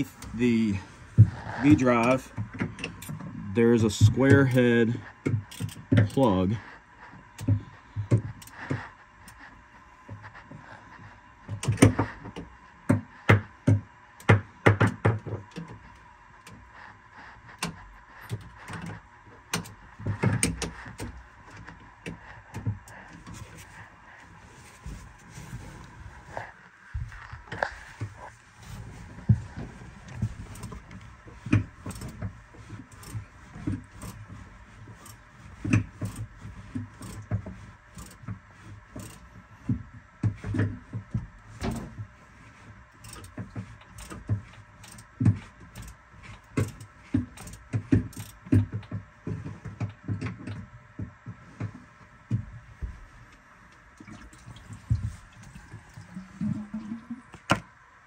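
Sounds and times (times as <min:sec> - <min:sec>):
ratchet clicking: 0:05.5 - 0:06.2, 0:31.5 - 0:32.2, 0:32.9 - 0:34.2, 0:34.9 - 0:36.3, 0:36.9 - 0:37.3, 0:37.9 - 0:38.2, 0:39.0 - 0:39.3, 0:43.0 - 0:45.1, 0:45.7 - 0:48.5.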